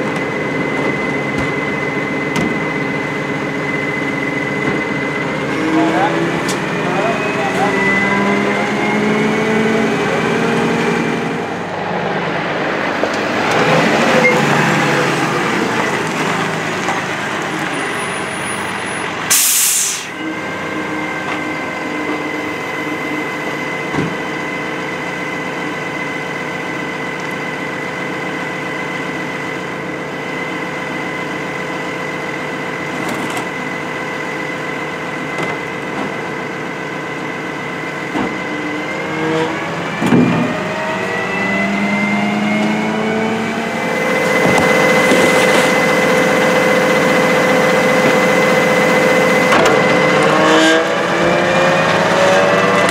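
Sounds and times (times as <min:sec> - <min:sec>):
garbage truck engine idling and revving: 0:00.0 - 0:52.9
air brake hiss: 0:19.3 - 0:20.2.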